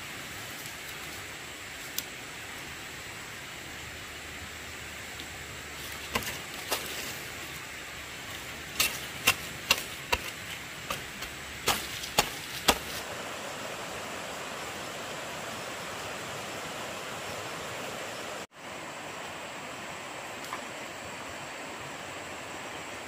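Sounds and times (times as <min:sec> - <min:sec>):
running water rushing: 0:00.0 - 0:23.0.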